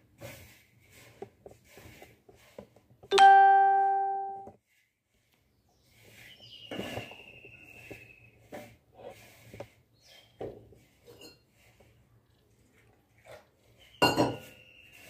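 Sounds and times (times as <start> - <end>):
hands mixing semolina in brass plate: 0.0 - 3.0, 4.6 - 15.0
bell-like chime: 3.1 - 4.5.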